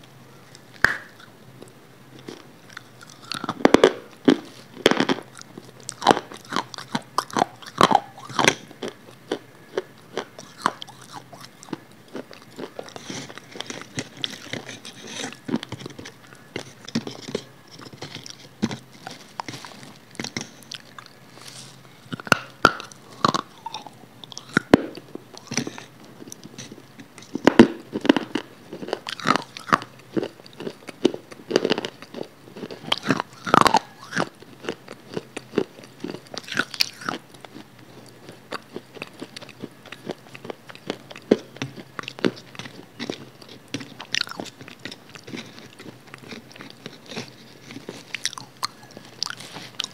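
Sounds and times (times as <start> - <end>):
crunching bites and chewing: 0.4 - 49.9
wet mouth noises: 0.6 - 1.4, 10.2 - 28.3.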